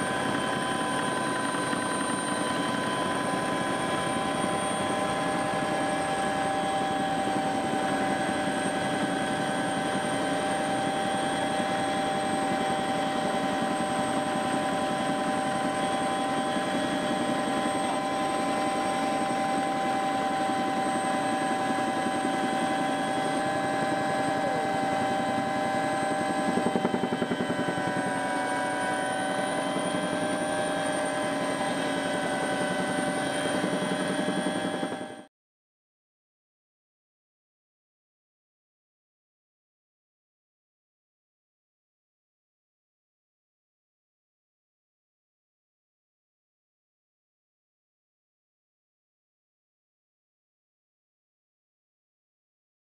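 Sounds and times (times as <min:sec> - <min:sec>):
helicopter rotor thrum: 0:00.0 - 0:35.2
helicopter turbine whine: 0:00.0 - 0:35.3.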